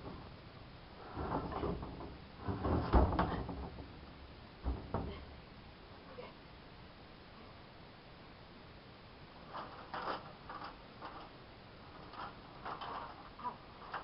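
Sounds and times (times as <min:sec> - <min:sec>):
plywood sheet scraping and knocking on wood: 0:01.0 - 0:04.0, 0:09.4 - 0:11.3.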